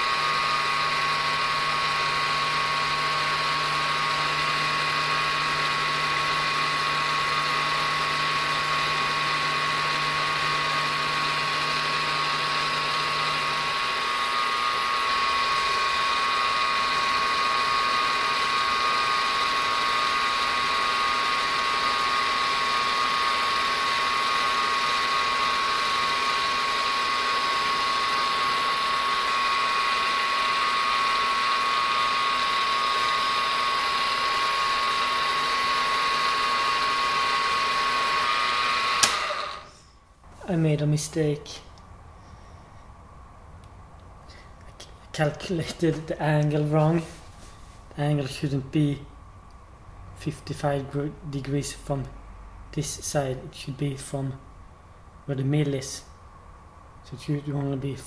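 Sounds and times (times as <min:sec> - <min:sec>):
milling machine spindle whine: 0:00.0 - 0:39.8.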